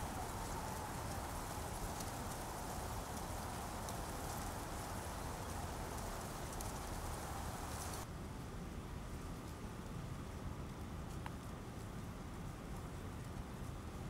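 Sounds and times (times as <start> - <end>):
wind rumble on microphone: 0.0 - 8.0
outdoor ambience: 0.0 - 14.0
wind rustling dry grass: 0.0 - 14.0.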